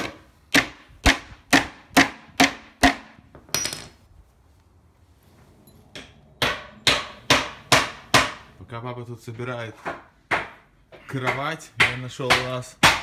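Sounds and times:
hammer striking nail into wood: 0:00.0 - 0:03.2, 0:06.0 - 0:08.5, 0:09.8 - 0:10.6, 0:11.2 - 0:13.0.

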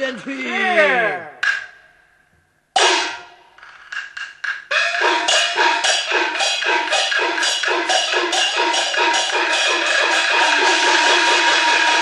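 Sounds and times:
gongs and cymbals beating: 0:02.8 - 0:12.0.

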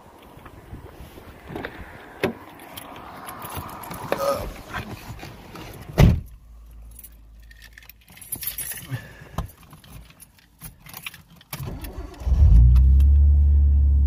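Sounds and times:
rustling of person climbing in: 0:00.1 - 0:11.8
car door closing thud: 0:06.0 - 0:06.3.

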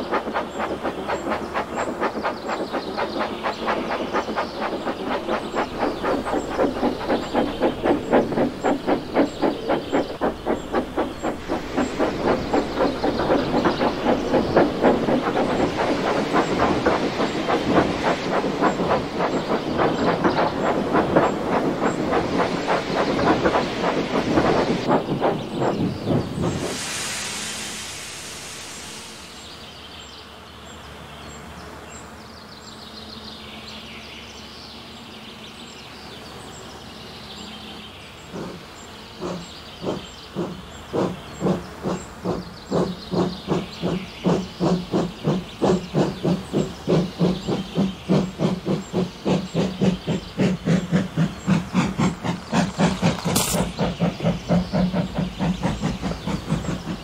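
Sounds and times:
locomotive exhaust chuffs: 0:00.0 - 0:26.8, 0:39.2 - 0:57.0
steam hiss: 0:00.0 - 0:30.2, 0:38.3 - 0:57.0.

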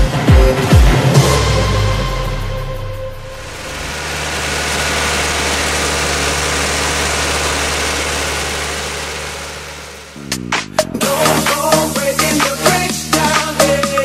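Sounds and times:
music: 0:00.0 - 0:03.6, 0:10.2 - 0:14.0
tractor diesel engine running: 0:01.3 - 0:12.9.

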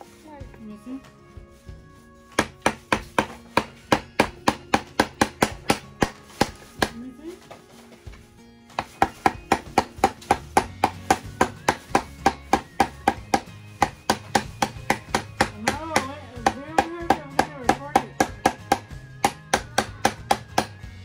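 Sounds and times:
background music: 0:00.0 - 0:21.0
hammer tapping nails into wood: 0:02.4 - 0:07.0, 0:08.8 - 0:20.8.

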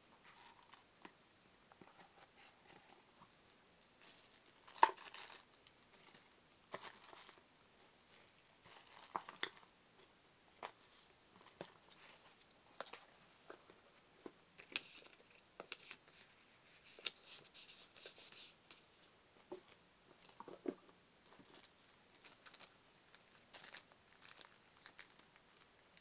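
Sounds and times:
plastic bags crinkling: 0:04.0 - 0:09.7, 0:21.2 - 0:26.0.

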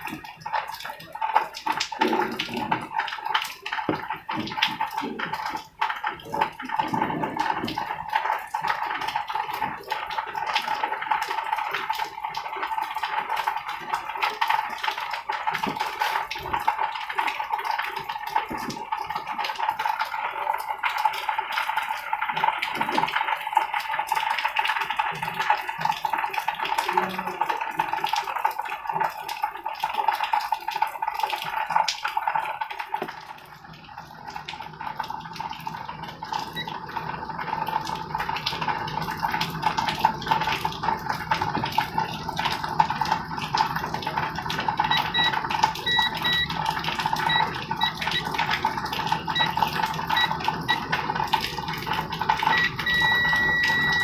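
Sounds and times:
multimeter short beeps: 0:45.9 - 0:46.4, 0:52.5 - 0:54.0.

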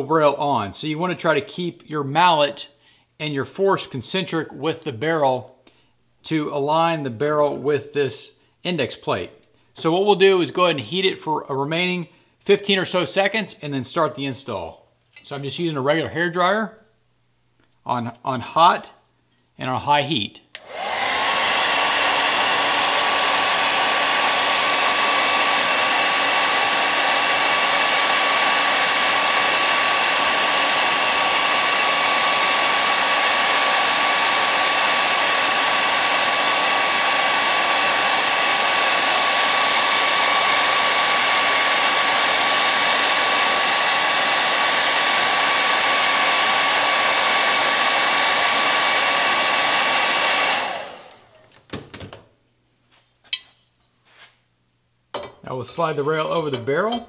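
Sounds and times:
hair dryer running: 0:20.6 - 0:51.4.

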